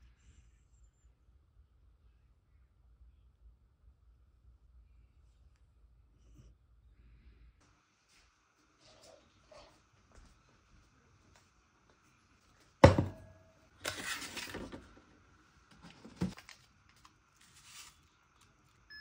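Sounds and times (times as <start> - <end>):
packet rustling: 15.7 - 18.8.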